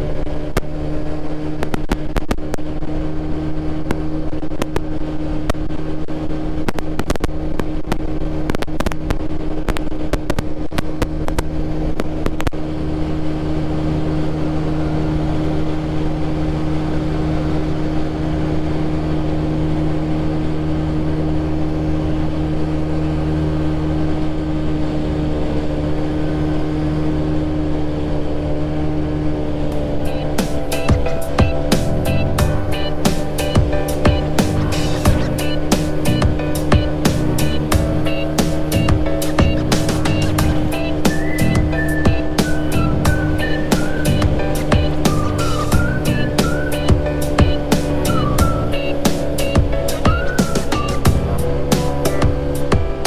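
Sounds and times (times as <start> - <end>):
motorcycle engine drone: 0.0 - 53.0
crackling clicks: 1.5 - 2.8, 3.8 - 5.9, 6.6 - 12.6.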